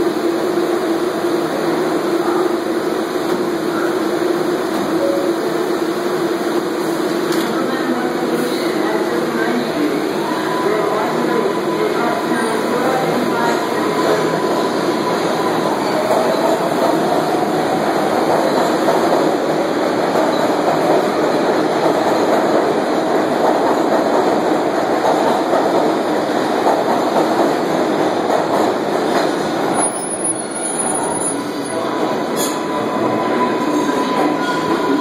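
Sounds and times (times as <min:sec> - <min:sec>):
subway train wheels rumbling: 0:00.0 - 0:35.0.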